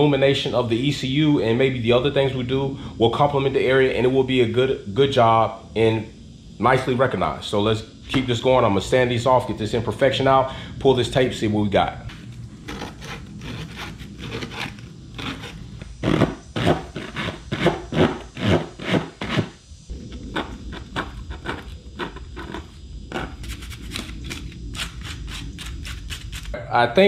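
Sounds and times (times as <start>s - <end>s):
hand-sanding plastic: 12.6s - 19.6s, 20.3s - 26.6s.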